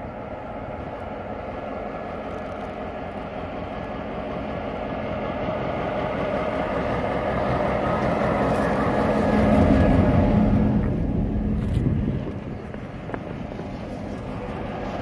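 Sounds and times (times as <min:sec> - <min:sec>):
diesel locomotive engine running: 0:00.0 - 0:15.0.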